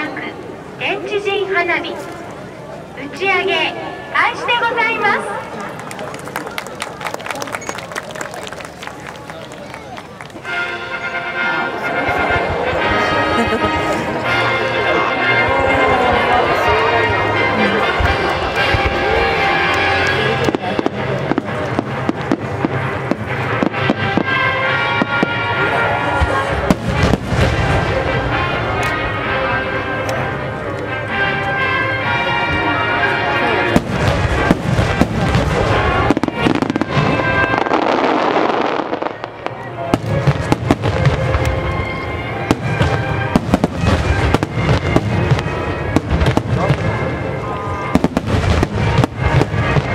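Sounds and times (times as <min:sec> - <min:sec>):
music playing: 0:10.0 - 0:49.9
fireworks bangs and cracks: 0:16.5 - 0:29.1, 0:33.6 - 0:49.9.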